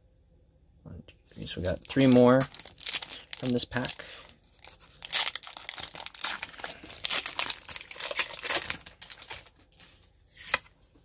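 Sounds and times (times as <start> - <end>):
foil wrapper tearing and crinkling: 1.5 - 9.8.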